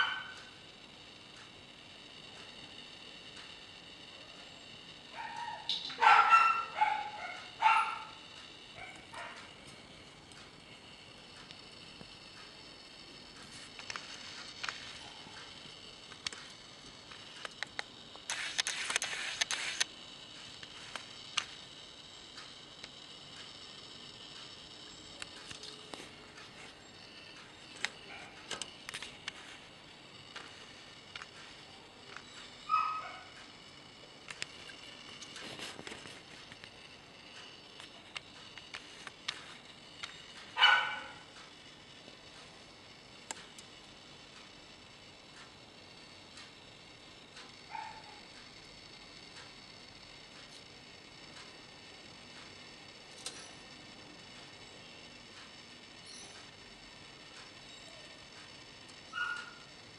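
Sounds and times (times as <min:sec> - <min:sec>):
dog barking: 0:00.0 - 0:00.4, 0:05.2 - 0:08.1, 0:32.7 - 0:33.3, 0:40.6 - 0:41.2, 0:47.7 - 0:48.2, 0:59.2 - 0:59.6
sharp clicks: 0:13.3 - 0:21.6.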